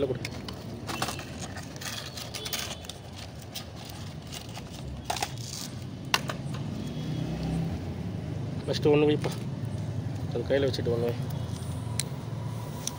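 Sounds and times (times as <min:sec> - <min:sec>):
paper wrappers rustling: 0:00.0 - 0:05.9.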